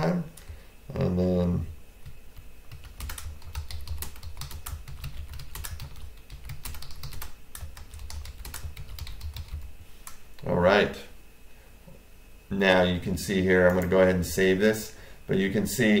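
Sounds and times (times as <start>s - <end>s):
keyboard typing clicks: 2.0s - 10.5s.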